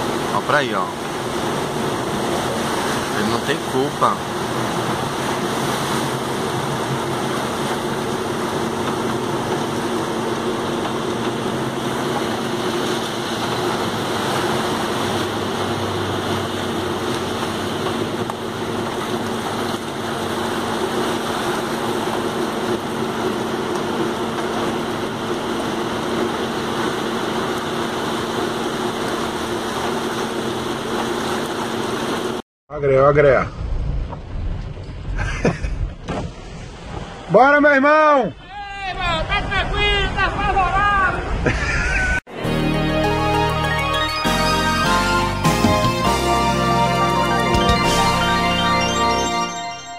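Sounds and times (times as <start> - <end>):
vehicle engine humming: 0.0 - 27.5
moving floodwater: 0.0 - 32.4
rain: 0.0 - 32.4.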